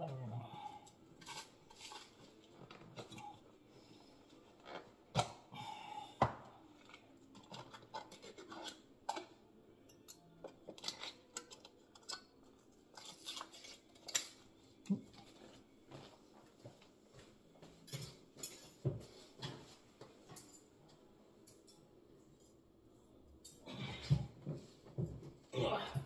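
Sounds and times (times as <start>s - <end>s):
rustling and scraping: 1.2s - 3.1s.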